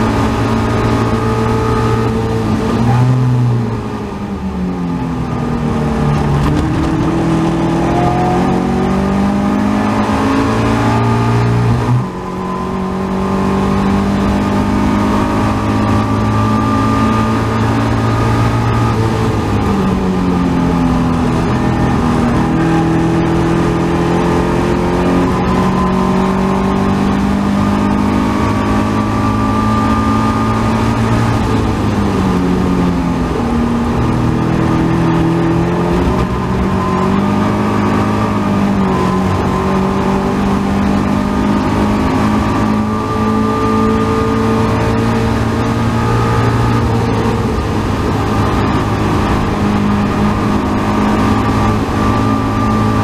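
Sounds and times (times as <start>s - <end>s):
race car engine revving: 0.0s - 53.0s
wind rush: 5.2s - 10.8s.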